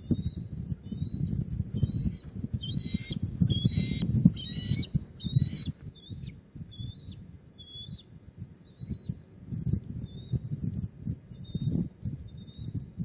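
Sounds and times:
eagles chirping: 0.0s - 9.2s.

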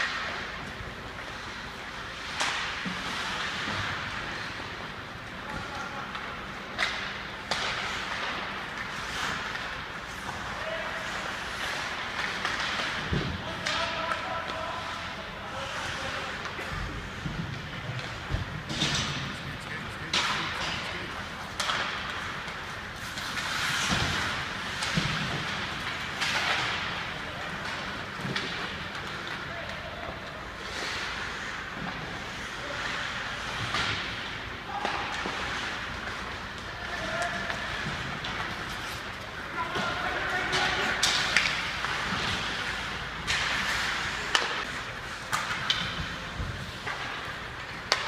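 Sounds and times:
hockey sticks and puck knocking: 0.0s - 19.5s, 20.1s - 48.0s
skates scraping on ice: 0.0s - 48.0s.

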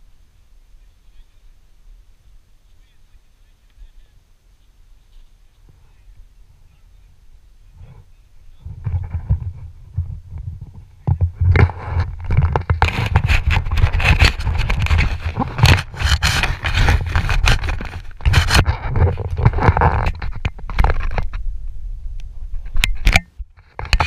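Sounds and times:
wind buffeting microphone: 5.5s - 24.0s
nylon rustling and scraping: 11.3s - 21.4s.

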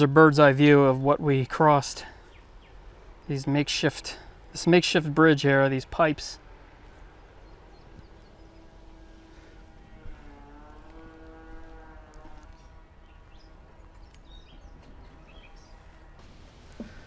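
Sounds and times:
distant engine droning: 0.0s - 17.0s
low outdoor rumble: 0.0s - 17.0s
bird chirps: 7.2s - 9.1s, 12.5s - 16.1s.

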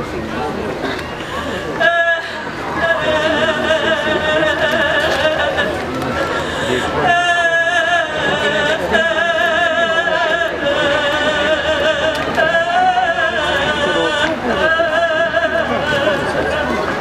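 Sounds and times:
low crowd noise: 0.0s - 17.0s
person chanting: 1.4s - 17.0s.

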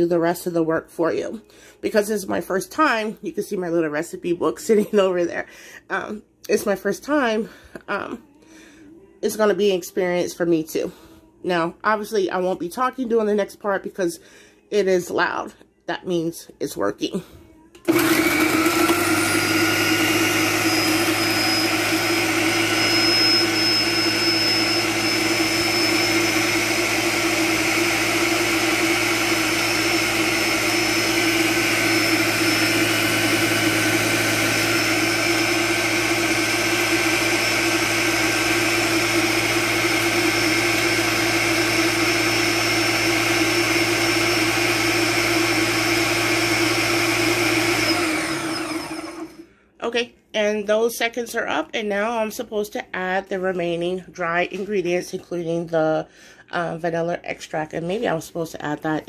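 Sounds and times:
blender running: 17.8s - 49.5s.

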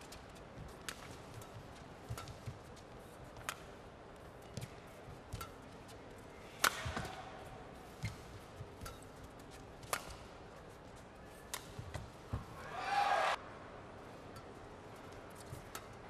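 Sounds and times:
rackets striking shuttlecock: 0.6s - 10.5s, 11.4s - 13.4s.

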